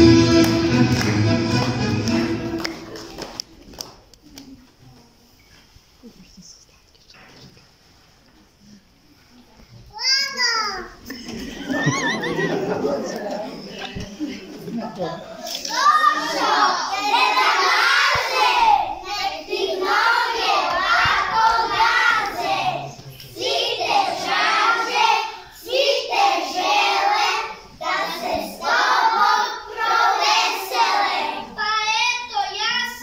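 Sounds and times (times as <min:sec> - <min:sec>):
children singing in unison: 0:15.8 - 0:31.6.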